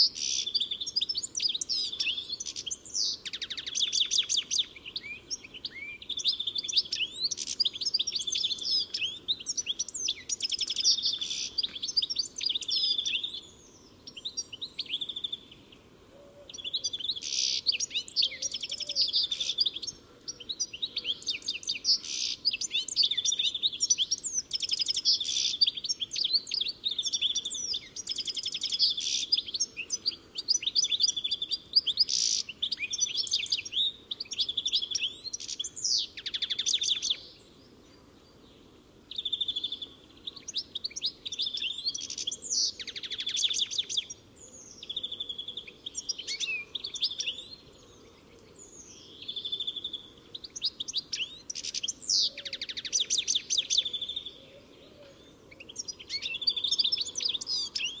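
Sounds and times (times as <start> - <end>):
goldfinch singing: 39.1 - 47.6.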